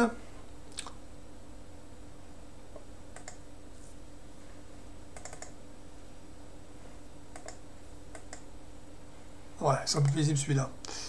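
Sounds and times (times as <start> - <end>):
low steady hum: 0.0 - 11.0
computer mouse clicks: 3.2 - 3.4, 5.2 - 5.6, 7.3 - 8.5.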